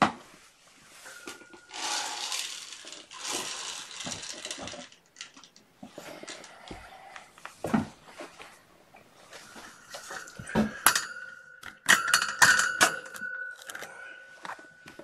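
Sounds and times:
metallic clinks and rattles: 1.0 - 5.6, 9.8 - 15.0
lingering ringing tone: 12.8 - 15.0.

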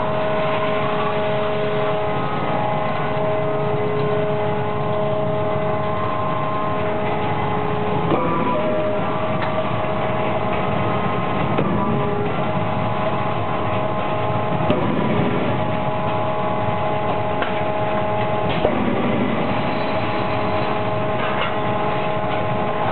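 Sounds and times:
machinery humming: 0.0 - 22.9.

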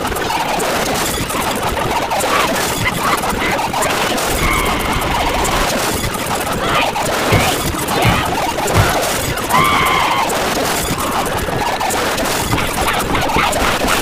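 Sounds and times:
overlapping voices: 7.3 - 9.7.

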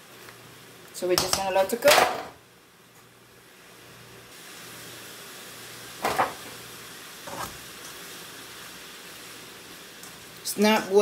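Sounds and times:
food hissing in a pan: 2.5 - 11.0.

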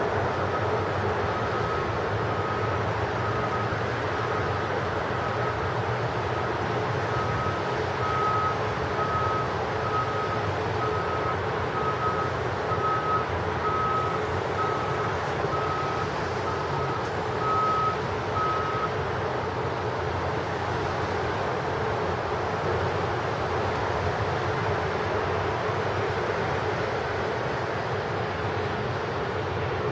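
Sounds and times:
traffic rumble: 0.0 - 29.9
reversing alarm beeping: 0.5 - 4.6, 7.1 - 19.0.

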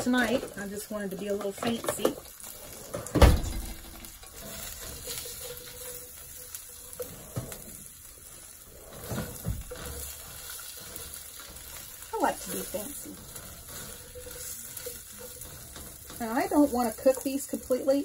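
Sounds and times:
potatoes sizzling in oil: 0.0 - 18.0
spatula knocking skillet: 0.0 - 18.0
loud thump: 3.2 - 3.8.

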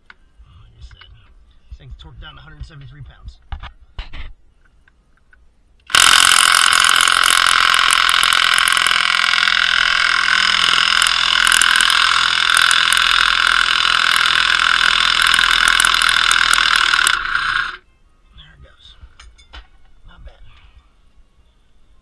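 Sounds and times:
impact wrench hammering: 5.9 - 17.8.

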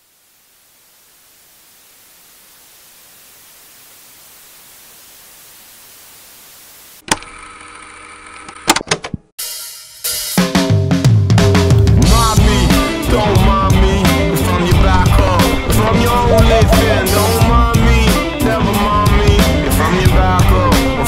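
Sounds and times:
television static hiss: 0.0 - 7.0.

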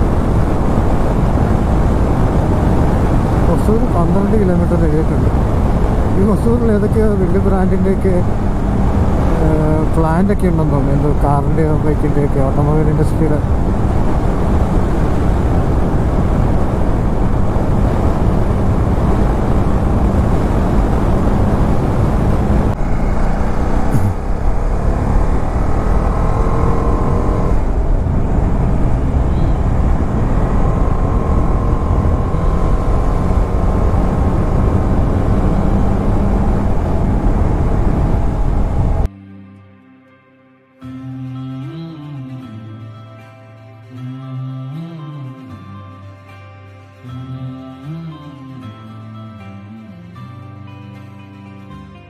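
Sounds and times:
motorcycle engine cruising: 0.0 - 39.1
wind rush on microphone: 0.0 - 39.1
faint high whine: 0.0 - 39.4
low hum: 0.0 - 39.7.

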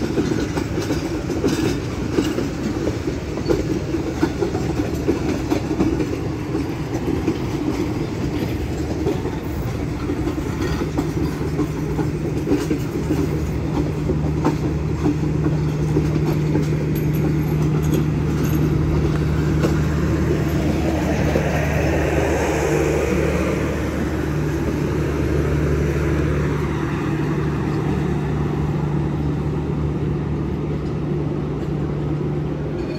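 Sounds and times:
train coaches rolling past: 0.0 - 32.9
generator car passing: 13.2 - 32.7.

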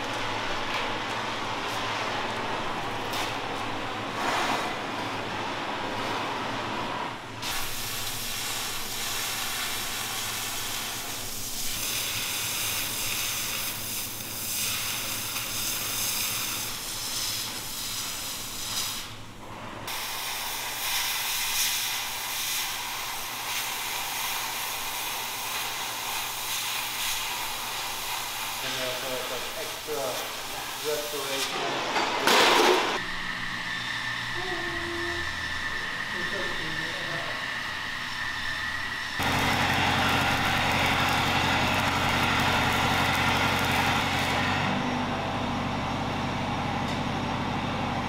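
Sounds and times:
cutting torch hissing: 7.4 - 19.2, 19.9 - 31.7, 33.0 - 44.8.

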